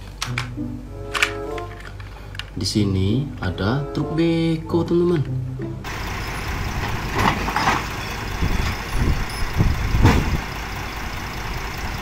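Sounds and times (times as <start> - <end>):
excavator diesel engine rumble: 5.8 - 12.0
tracks clanking on trailer deck: 5.9 - 12.0.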